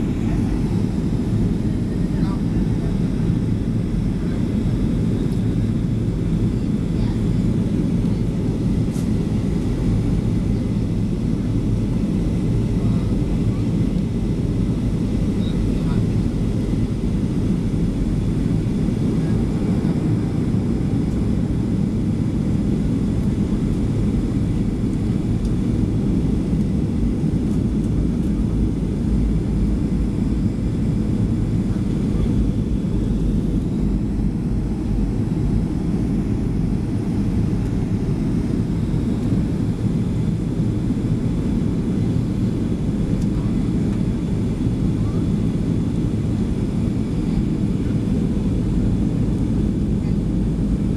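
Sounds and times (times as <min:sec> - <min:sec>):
airliner cabin rumble: 0:00.0 - 0:50.9.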